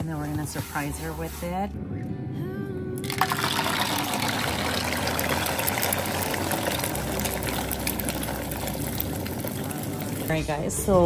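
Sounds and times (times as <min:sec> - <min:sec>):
eggs sizzling in a frying pan: 0:03.0 - 0:10.4.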